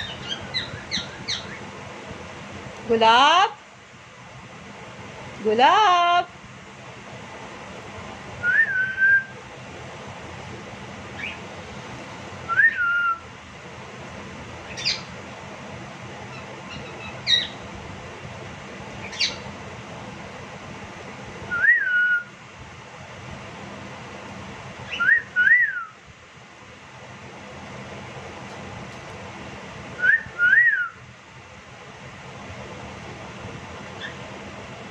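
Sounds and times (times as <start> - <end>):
cockatiel whistling: 12.5 - 13.2, 21.5 - 22.3, 24.8 - 26.0, 30.0 - 31.0.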